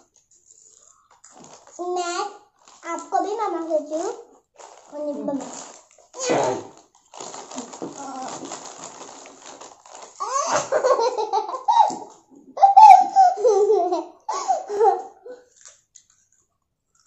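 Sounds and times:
girl laughing: 10.2s - 15.1s.

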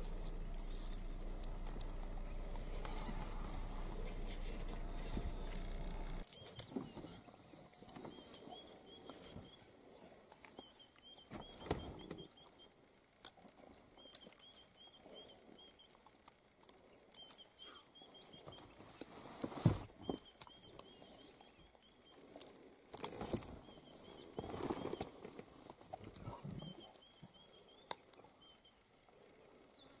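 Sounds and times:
rustles: 0.0s - 12.3s, 13.1s - 30.0s.

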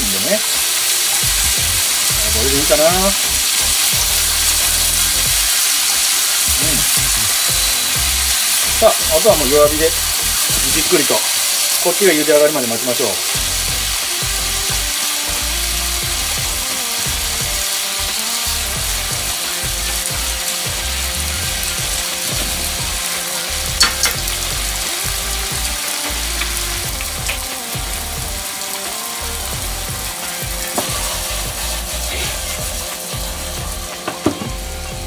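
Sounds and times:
food sizzling in a frying pan: 0.0s - 35.0s
chopsticks clicking against pan: 26.0s - 27.5s.

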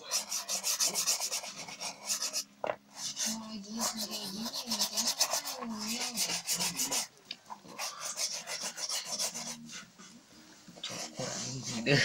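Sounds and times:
shoe brush scrubbing shoe: 0.0s - 2.4s, 3.0s - 7.1s, 7.8s - 9.6s.

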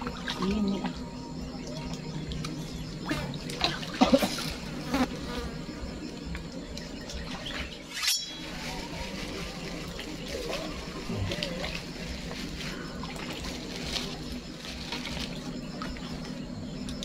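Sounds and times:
flying insect buzzing: 2.8s - 6.3s.

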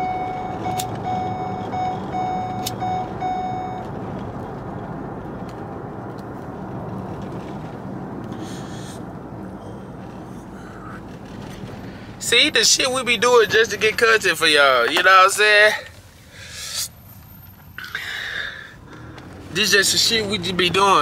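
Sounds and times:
car warning chime beeping: 0.0s - 4.0s
vehicle low hum: 0.0s - 21.0s
breathy exhale: 8.3s - 11.1s, 16.2s - 16.9s, 17.8s - 19.3s.

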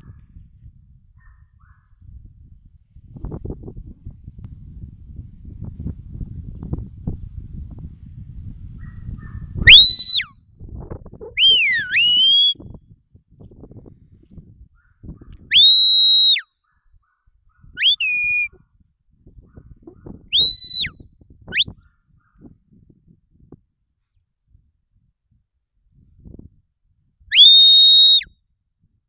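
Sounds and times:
wind rumbling on microphone: 0.0s - 29.0s
shepherd's whistles: 9.2s - 10.3s, 11.4s - 12.7s, 15.5s - 16.5s, 17.8s - 18.6s, 20.3s - 21.7s, 27.3s - 28.3s.

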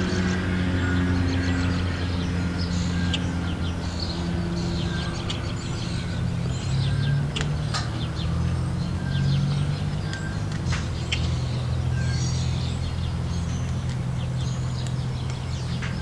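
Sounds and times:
low mechanical hum: 0.0s - 16.0s
small birds chirping: 0.0s - 16.0s.

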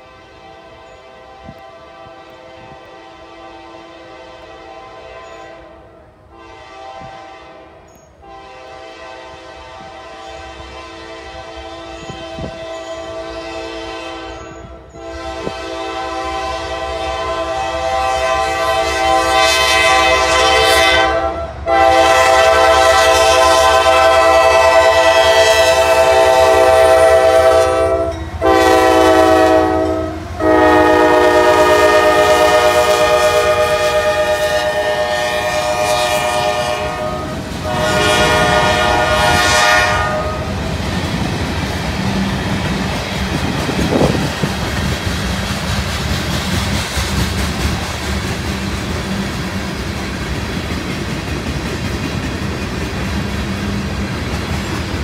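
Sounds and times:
locomotive air horn blasts: 0.0s - 40.7s
freight cars rumbling on rails: 14.3s - 55.0s.

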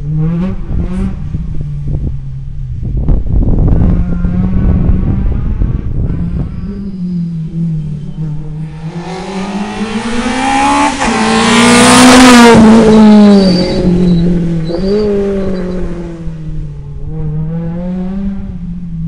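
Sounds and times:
rally car engine revving past: 3.9s - 18.8s.

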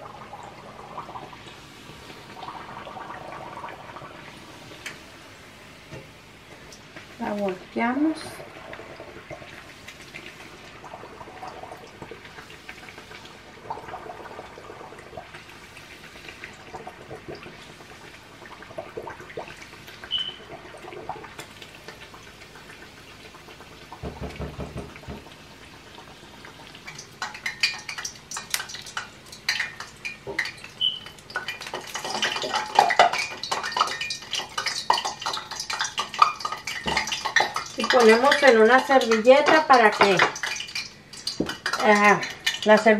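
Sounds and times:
food frying in hot oil: 0.0s - 42.9s
metal utensils clinking on pan: 31.4s - 42.9s.

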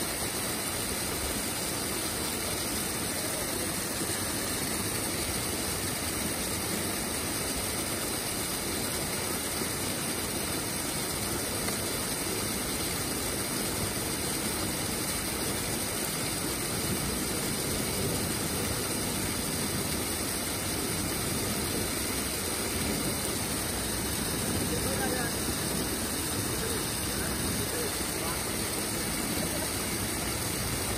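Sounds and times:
waterfall roaring: 0.0s - 30.9s.

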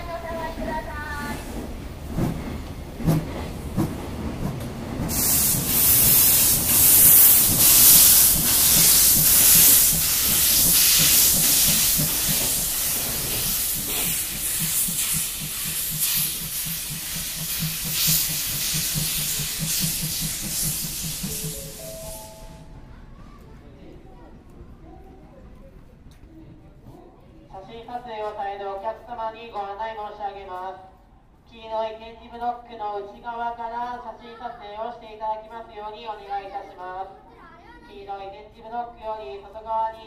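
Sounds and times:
steam locomotive hissing steam: 5.0s - 22.6s.

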